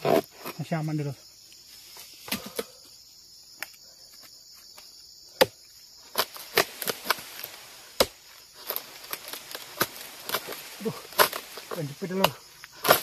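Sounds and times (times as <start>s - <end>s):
insects droning: 0.0s - 13.0s
sickle clicking and cracking: 6.1s - 13.0s.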